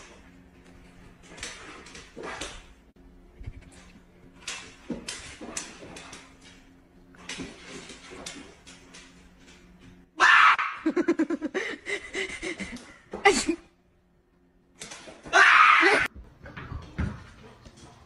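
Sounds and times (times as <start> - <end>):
person screaming: 10.2 - 11.0, 15.3 - 16.1
bursts of laughter: 10.6 - 13.5.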